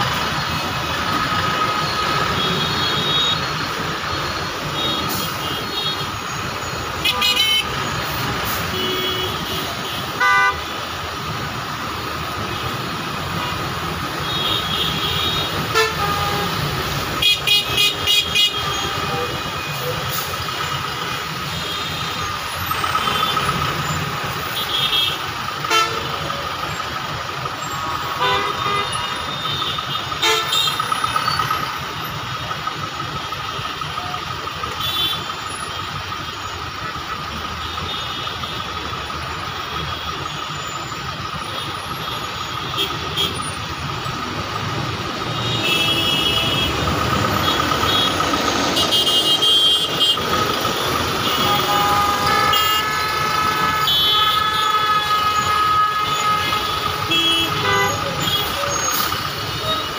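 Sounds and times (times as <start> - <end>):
traffic idling and crawling: 0.0 - 59.9
vehicle horns honking: 1.8 - 3.7, 7.0 - 10.8, 14.2 - 20.2, 21.4 - 26.4, 27.8 - 31.5, 34.0 - 35.9, 41.4 - 43.7, 45.3 - 59.9.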